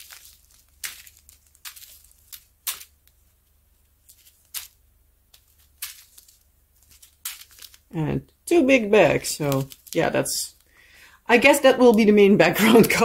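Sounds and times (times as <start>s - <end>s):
plastic bags crinkling: 0.0s - 8.0s, 8.6s - 10.8s.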